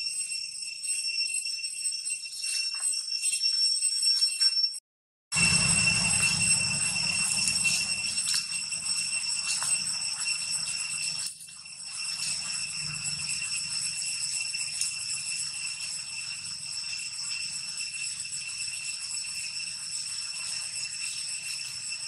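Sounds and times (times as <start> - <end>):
cicadas buzzing: 5.4 - 22.0.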